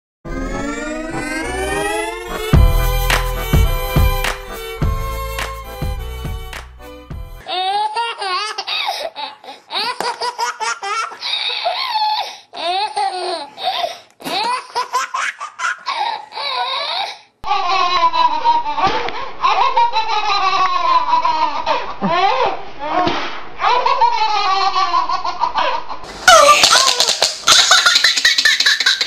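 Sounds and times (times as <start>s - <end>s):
baby laughing: 7.4s - 13.6s, 14.2s - 23.0s, 23.6s - 29.0s
two babies laughing: 7.4s - 23.0s, 23.6s - 29.0s.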